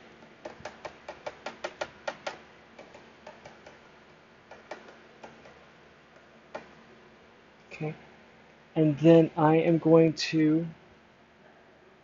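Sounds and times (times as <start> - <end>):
ink pad tapping rubber stamp: 0.4 - 3.8, 4.5 - 5.6.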